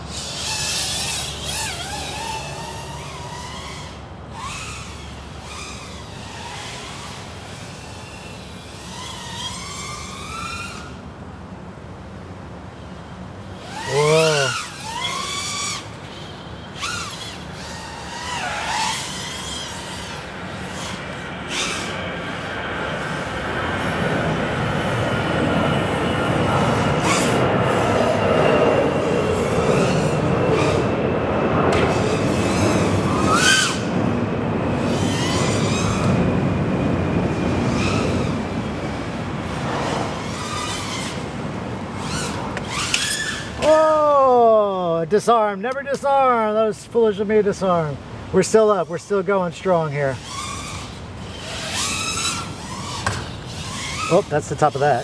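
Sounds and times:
drone motors whining: 0:00.0 - 0:11.6, 0:12.7 - 0:44.9, 0:47.6 - 0:55.0
rushing wind noise: 0:21.2 - 0:42.8.

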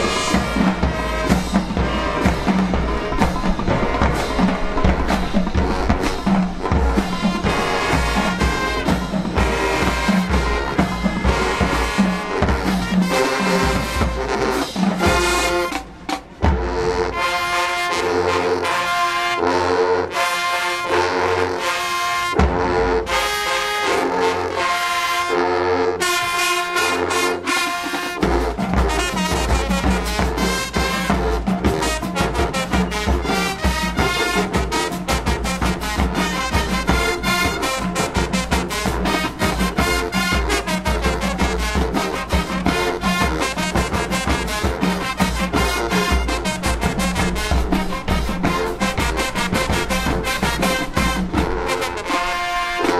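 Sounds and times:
brass led by trombones: 0:00.0 - 0:52.9
drumline: 0:00.0 - 0:52.9.

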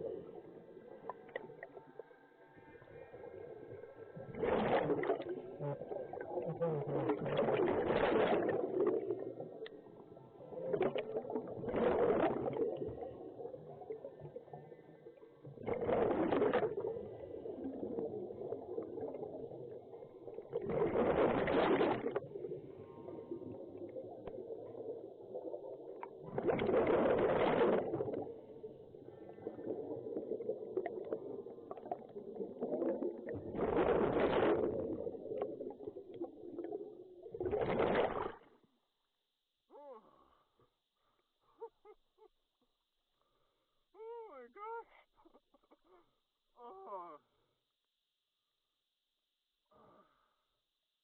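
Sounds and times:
exhaled bubbles underwater: 0:02.7 - 0:38.5.

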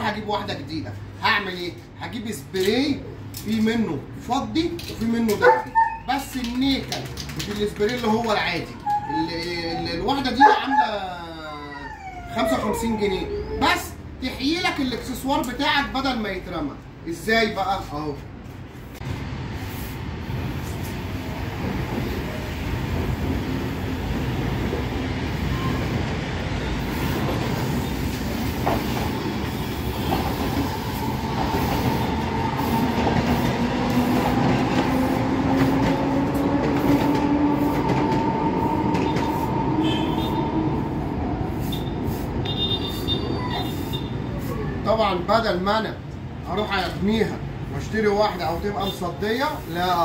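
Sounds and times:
aerosol spray can hissing: 0:19.6 - 0:20.6.

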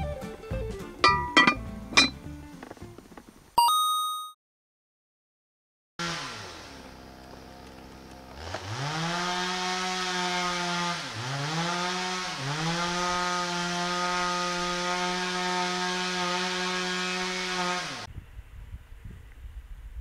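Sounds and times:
chainsaw cutting wood: 0:06.0 - 0:18.1.

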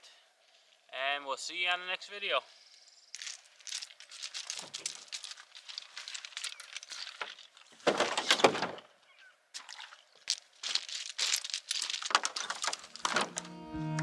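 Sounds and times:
crinkling and rustling handling: 0:03.1 - 0:08.9, 0:10.1 - 0:13.5.

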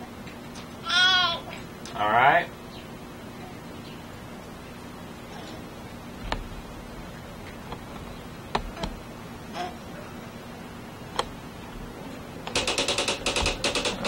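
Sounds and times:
faint low hum: 0:00.0 - 0:14.0
tape hiss: 0:00.0 - 0:14.0
sharp clicks: 0:12.4 - 0:14.0.

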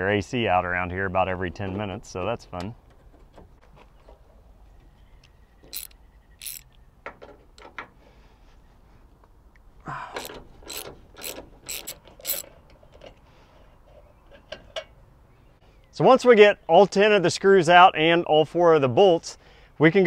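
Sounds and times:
hand ratchet clicking: 0:05.7 - 0:06.6, 0:10.2 - 0:12.5.

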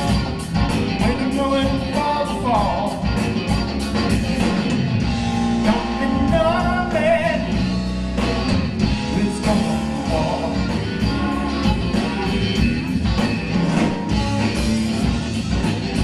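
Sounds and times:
bass guitar: 0:00.0 - 0:16.0
drum kit with cymbals: 0:00.0 - 0:16.0
electric guitar: 0:00.0 - 0:16.0.

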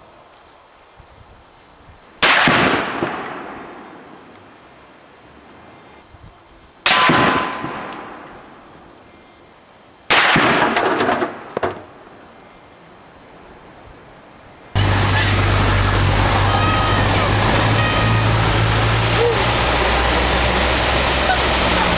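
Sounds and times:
gunshots with long echo: 0:02.2 - 0:03.9, 0:06.9 - 0:08.2, 0:10.1 - 0:11.4.

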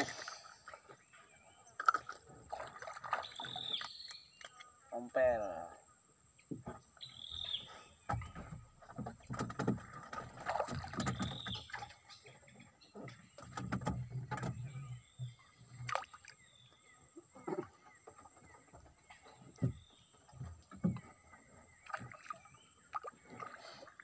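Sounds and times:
knocks and thumps on wooden boat: 0:06.4 - 0:16.0, 0:17.3 - 0:23.4.

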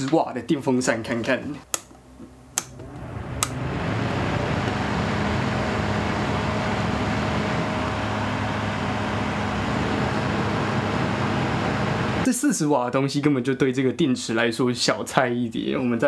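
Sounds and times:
fan switch click: 0:01.7 - 0:02.0, 0:02.6 - 0:03.6
electric fan running: 0:02.5 - 0:12.3.

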